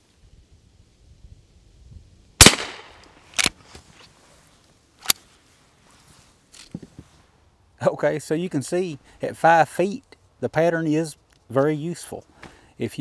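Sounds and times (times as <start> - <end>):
rifle shot: 2.4 - 3.5.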